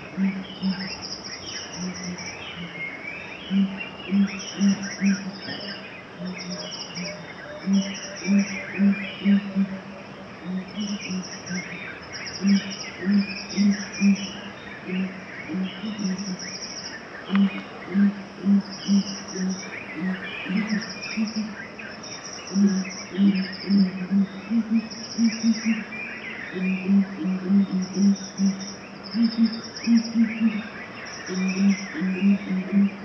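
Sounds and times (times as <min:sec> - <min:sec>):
low pulsing sound: 0:00.0 - 0:00.9, 0:03.5 - 0:05.6, 0:06.2 - 0:11.7, 0:12.4 - 0:16.5, 0:17.3 - 0:21.6, 0:26.6 - 0:28.6
birds chirping: 0:00.0 - 0:33.0
insects trilling: 0:00.0 - 0:33.0.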